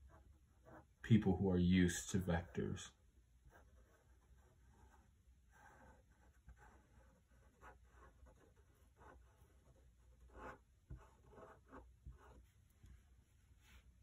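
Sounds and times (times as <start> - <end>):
marker scratching on block: 3.5 - 13.0.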